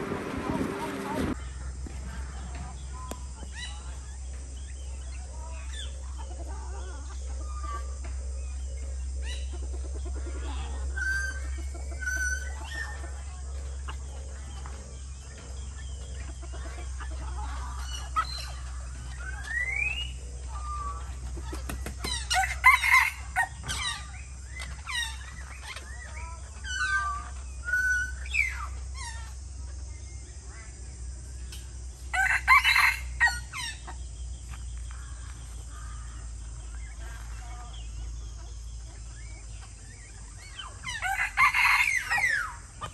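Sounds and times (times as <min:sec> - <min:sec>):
birds whistling and chirping: 0:02.3 - 0:30.4, 0:31.3 - 0:42.9
rooster crowing: 0:22.2 - 0:24.0, 0:32.1 - 0:33.8, 0:40.8 - 0:42.6.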